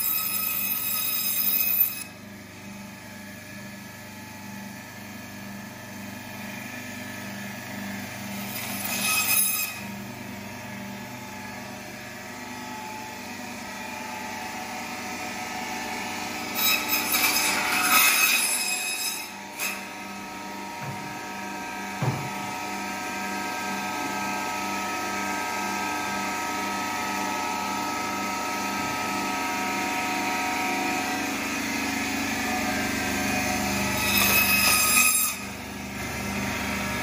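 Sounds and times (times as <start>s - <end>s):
band saw cutting carcass: 0.0s - 2.1s, 8.0s - 10.1s, 14.8s - 26.2s, 28.1s - 37.0s.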